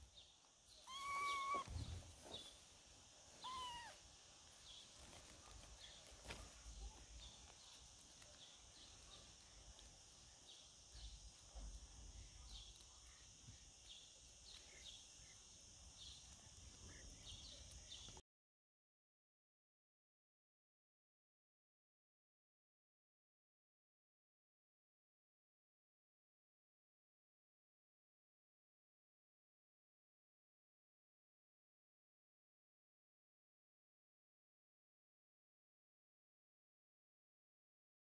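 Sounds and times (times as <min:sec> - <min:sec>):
faint steady hiss: 0:00.0 - 0:18.2
kitten meowing: 0:00.8 - 0:01.8, 0:03.4 - 0:04.0.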